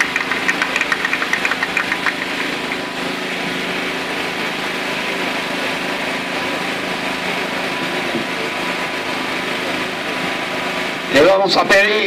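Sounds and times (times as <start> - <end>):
scattered clapping: 0.0 - 2.9
steady engine drone: 0.0 - 12.0.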